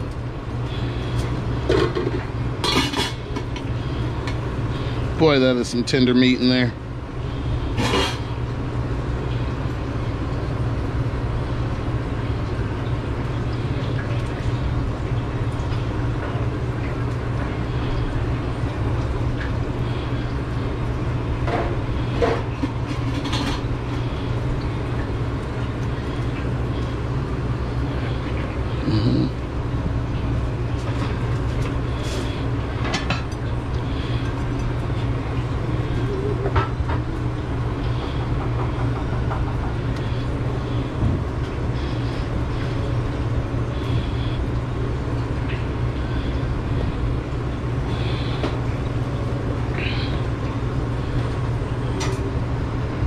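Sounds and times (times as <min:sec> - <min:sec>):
constant hum: 0:00.0 - 0:53.0
machinery drone: 0:31.7 - 0:52.6.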